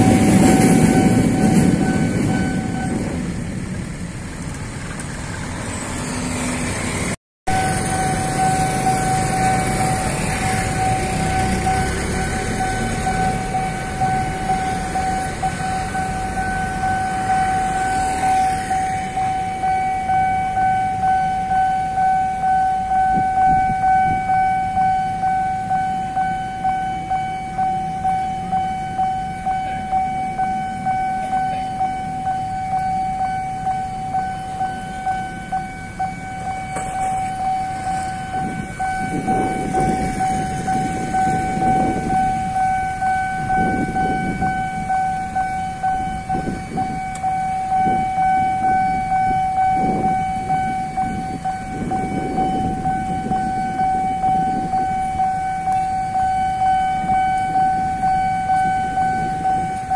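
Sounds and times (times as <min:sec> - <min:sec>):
level crossing warning bell: 0:00.0 - 0:04.0, 0:07.5 - 0:59.9
motorcycles rumbling: 0:00.0 - 0:19.6, 0:34.5 - 0:45.4.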